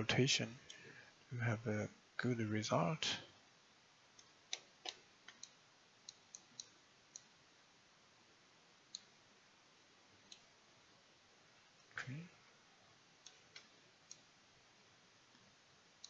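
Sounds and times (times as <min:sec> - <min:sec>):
computer mouse clicks: 0:04.2 - 0:07.3.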